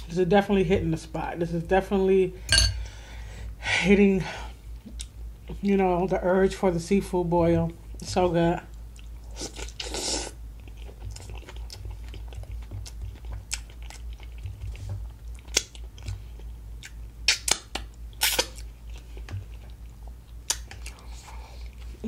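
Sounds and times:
person chewing food: 4.8s - 5.6s, 8.7s - 22.0s
wet mouth clicks: 16.8s - 18.7s, 20.5s - 21.0s.

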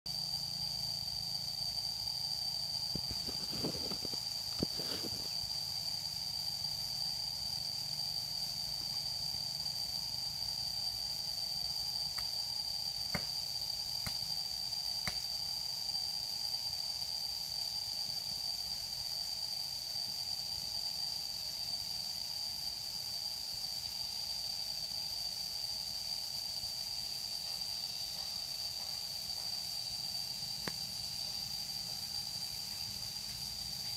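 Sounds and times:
high-pitched insect drone: 0.1s - 33.9s
rustles and clicks: 3.0s - 5.4s.

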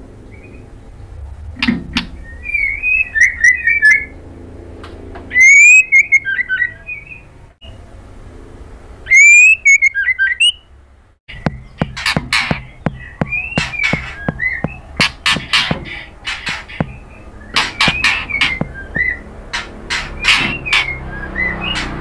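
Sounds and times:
bird singing whistles and chirps: 2.1s - 4.2s, 5.3s - 7.3s, 9.1s - 10.6s, 11.4s - 16.0s, 16.7s - 19.3s.

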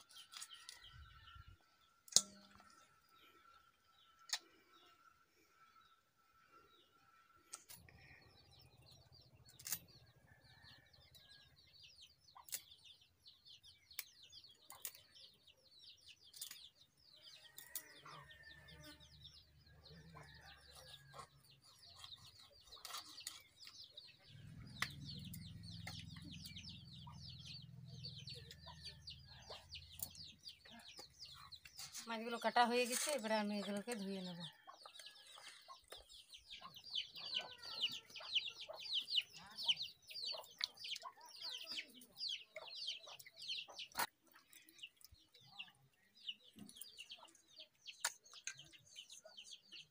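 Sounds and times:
birds chirping: 0.0s - 49.9s
chickens clucking: 19.9s - 49.9s.

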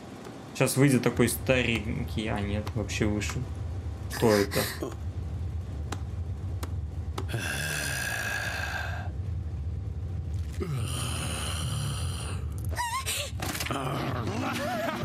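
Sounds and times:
low steady rumble: 0.0s - 15.0s
strained drawn-out demon vocals: 7.3s - 9.1s, 10.5s - 12.7s.

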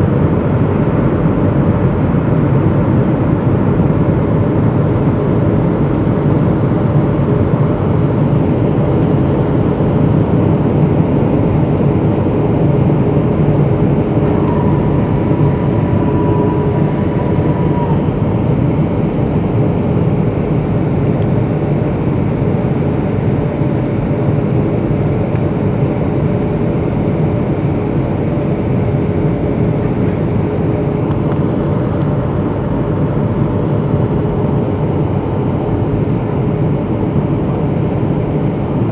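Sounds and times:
steady low tone: 0.0s - 21.4s
jet engine hum: 0.0s - 38.9s
airflow noise: 10.4s - 20.5s
thin high whine: 12.3s - 19.8s.

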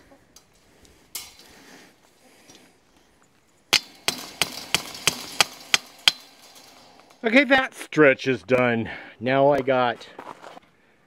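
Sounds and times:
hammer striking metal post: 3.7s - 7.2s.

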